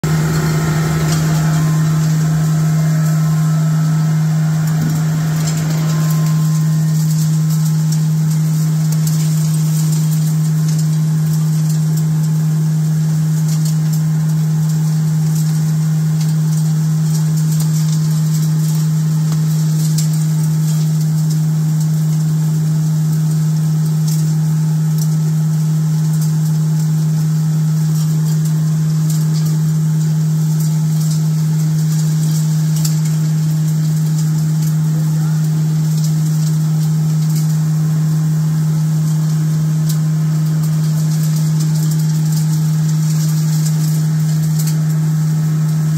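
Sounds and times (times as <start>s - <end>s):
grinding machine hum: 0.0s - 10.8s.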